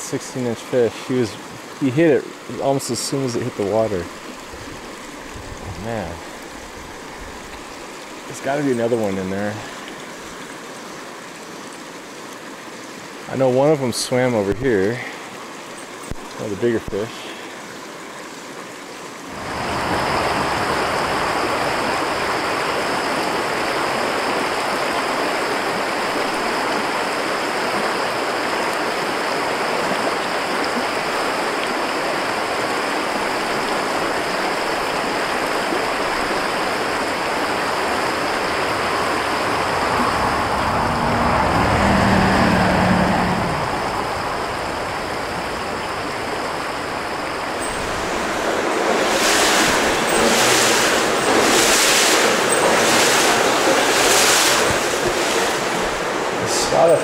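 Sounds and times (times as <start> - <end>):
creek rushing over rocks: 0.0 - 57.0
low rumble: 37.6 - 51.4.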